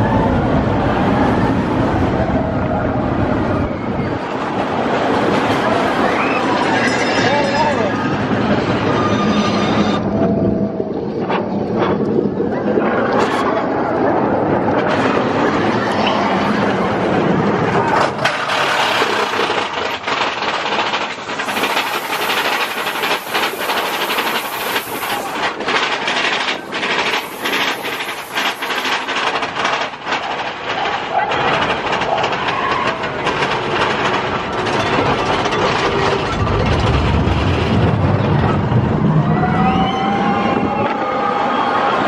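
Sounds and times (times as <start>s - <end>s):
roller coaster cars rattling: 0.0s - 42.0s
sharp clacks of track: 17.9s - 38.1s.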